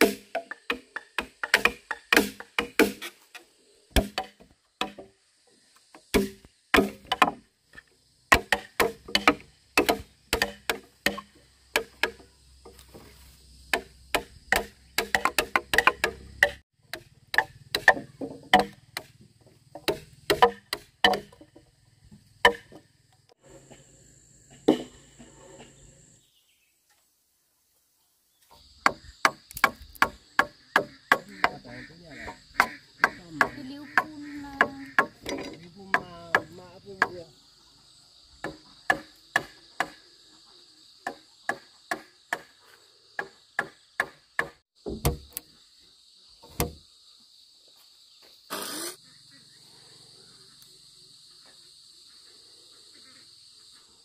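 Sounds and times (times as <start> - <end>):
hand tools striking timber: 0.0 - 3.2, 3.9 - 5.1, 6.0 - 13.1, 13.7 - 21.6, 22.4 - 22.8, 24.6 - 25.0, 28.8 - 31.6, 32.2 - 37.2, 38.4 - 40.0, 41.0 - 42.6, 43.2 - 45.4, 46.5 - 46.8.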